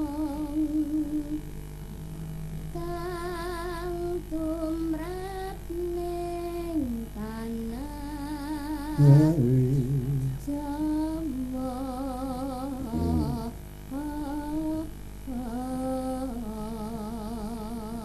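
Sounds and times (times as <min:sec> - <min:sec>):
woman singing with vibrato: 0:00.0 - 0:01.5, 0:02.7 - 0:18.0
heavy low stroke: 0:12.8 - 0:13.6.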